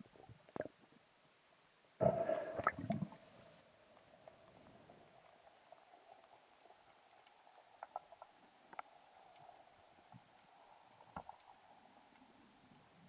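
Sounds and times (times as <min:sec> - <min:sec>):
faint underwater hum: 0:00.0 - 0:13.0.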